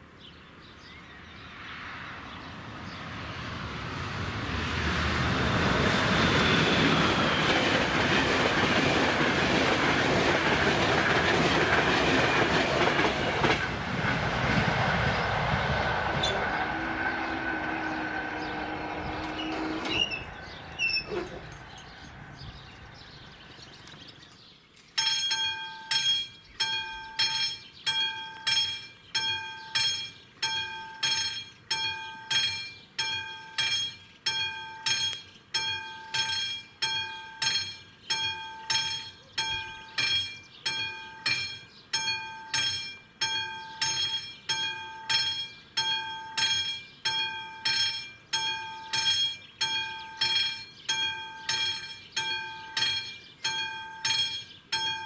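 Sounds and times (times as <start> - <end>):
train rumble: 1.6 - 24.2
level crossing bell clanging: 25.0 - 55.0.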